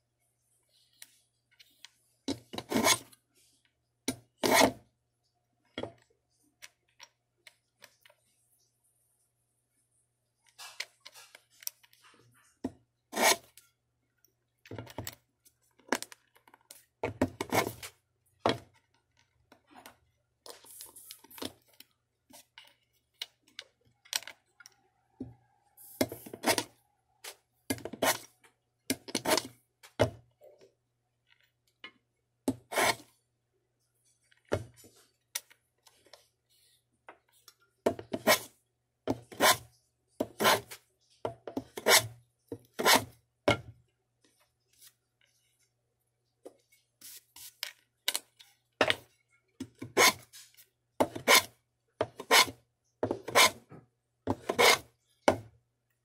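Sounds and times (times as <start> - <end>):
hand tools scraping wood: 2.5 - 3.1, 13.2 - 13.5, 32.7 - 33.0, 39.1 - 40.8, 41.6 - 42.2, 42.8 - 43.1, 49.8 - 50.4, 51.0 - 52.6, 53.2 - 53.7, 54.3 - 54.9.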